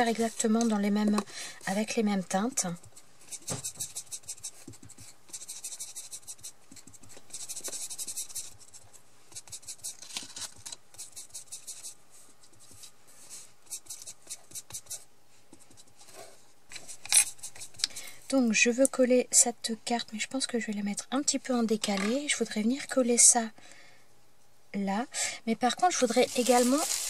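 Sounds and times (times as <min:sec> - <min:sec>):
foam dauber brushing on paper: 0:03.2 - 0:10.0, 0:11.0 - 0:16.4, 0:26.0 - 0:27.0.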